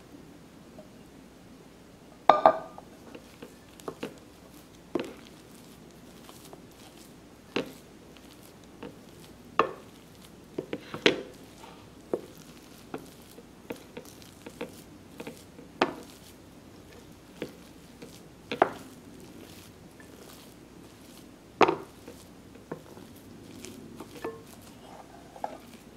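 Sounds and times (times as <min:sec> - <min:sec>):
spatula tapping glass bowl: 0:02.3 - 0:02.8.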